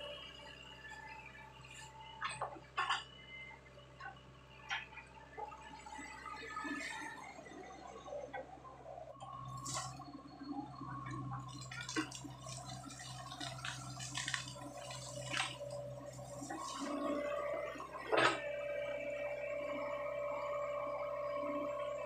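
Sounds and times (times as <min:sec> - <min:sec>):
excavator engine and hydraulics: 0:00.0 - 0:22.0
mud sloshing and squelching: 0:11.4 - 0:17.8.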